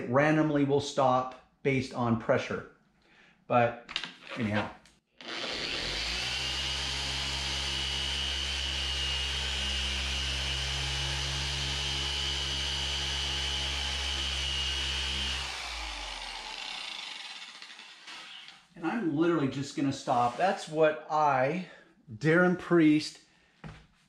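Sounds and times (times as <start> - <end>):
orbital polisher humming: 5.2 - 18.6.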